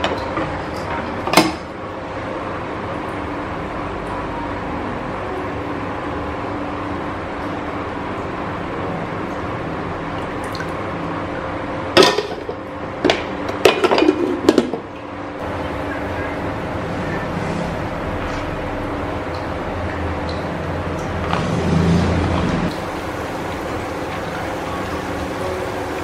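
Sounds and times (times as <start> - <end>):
gas burner hissing: 21.6 - 26.0.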